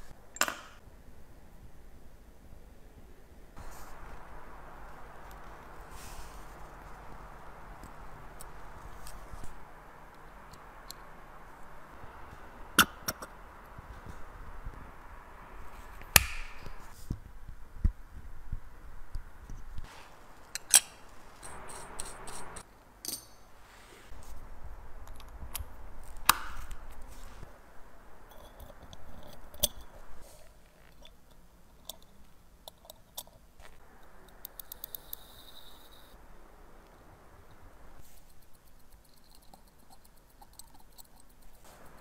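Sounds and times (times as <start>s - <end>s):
sharp snaps: 15.9s - 16.9s, 25.5s - 27.1s
light scraping: 19.8s - 22.6s.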